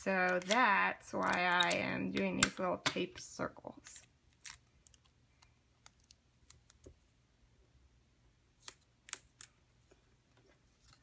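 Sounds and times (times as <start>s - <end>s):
sticky tape clicks and rustles: 0.2s - 2.7s.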